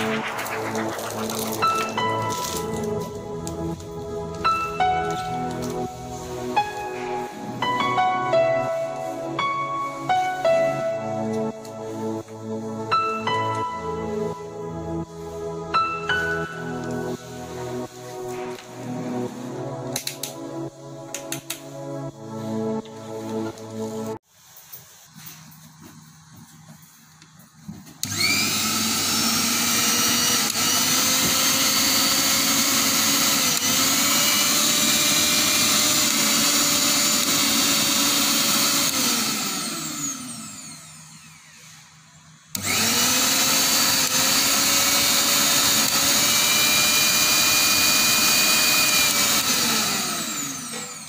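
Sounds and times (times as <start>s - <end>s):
mixer grinder motor whining: 0.0s - 6.6s, 28.0s - 51.0s.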